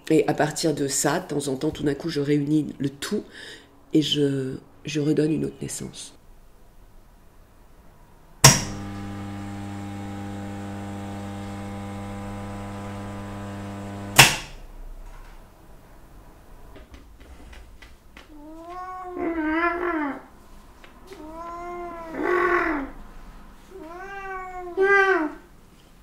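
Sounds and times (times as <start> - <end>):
kiln electrical hum: 0.0 - 26.0
kiln switch click: 8.4 - 9.2, 12.5 - 14.6
cat meowing: 18.3 - 20.3, 21.1 - 22.9, 23.7 - 25.4.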